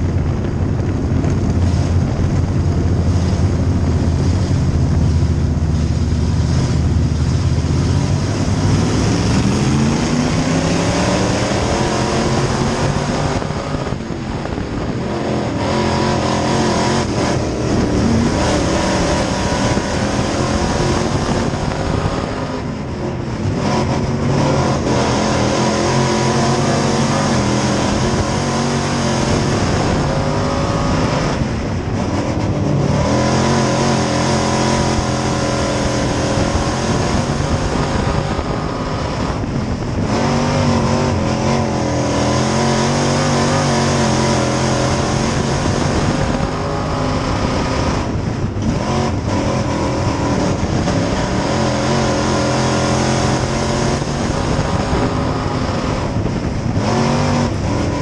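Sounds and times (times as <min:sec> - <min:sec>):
race car engine revving: 0:00.0 - 0:58.0.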